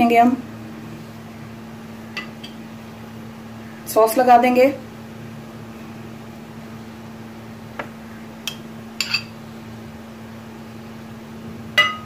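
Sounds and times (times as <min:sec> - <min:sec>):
metal spoon clinks: 0:08.5 - 0:09.3.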